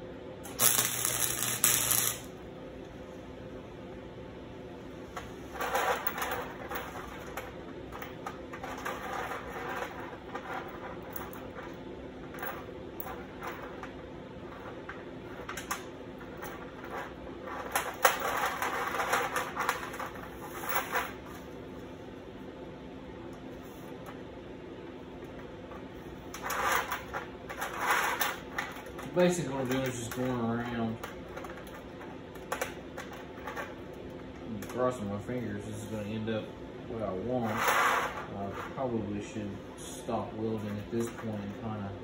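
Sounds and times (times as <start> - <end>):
chain links clinking on steel sheet: 0.5 - 2.2.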